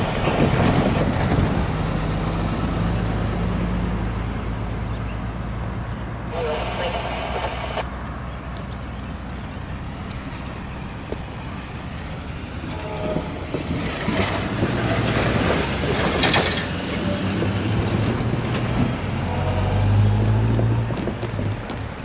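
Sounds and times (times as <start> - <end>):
diesel locomotive engine drone: 0.0 - 22.0
faint train horn: 12.6 - 13.5.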